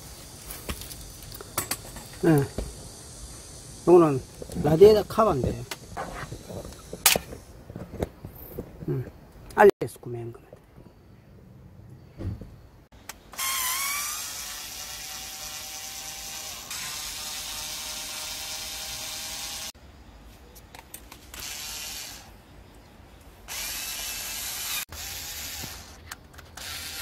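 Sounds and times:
cordless screwdriver whining: 13.3 - 19.7, 21.3 - 22.3, 23.5 - 27.0.

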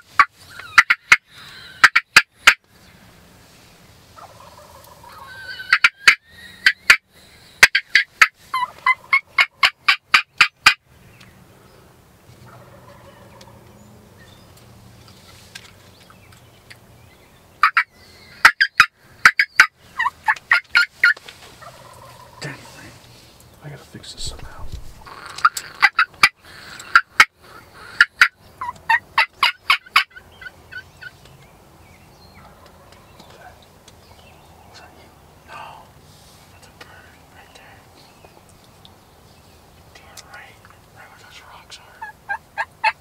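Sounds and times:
turkey gobbling: 0.1 - 2.6, 4.1 - 7.0, 7.6 - 10.8, 12.5 - 13.6, 17.6 - 22.8, 24.9 - 31.2, 32.4 - 33.1, 41.9 - 43.0.

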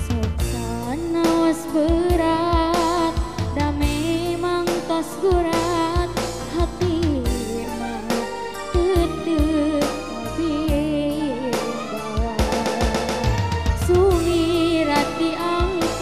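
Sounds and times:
electronic keyboard: 0.0 - 16.0
woman singing pop song: 0.0 - 16.0
steady drum beat: 12.2 - 16.0.

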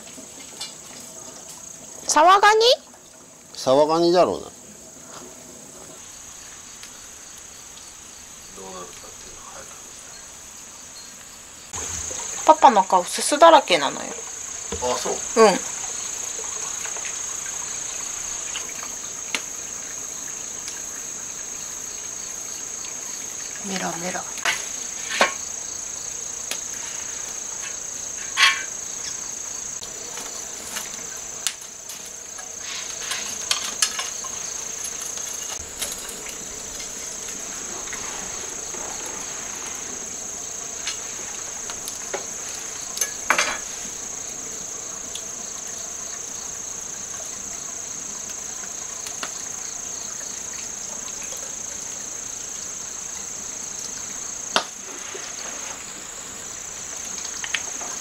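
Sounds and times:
crickets trilling: 0.0 - 58.0
wood fire clicks and knocks: 29.8 - 39.8.

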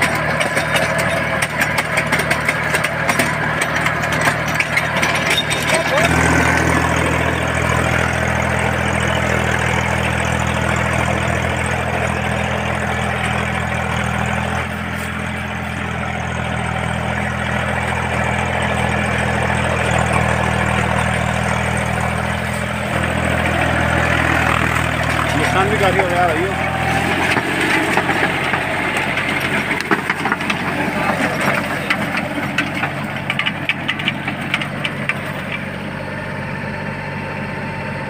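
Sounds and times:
tractor engine running: 0.0 - 38.0.

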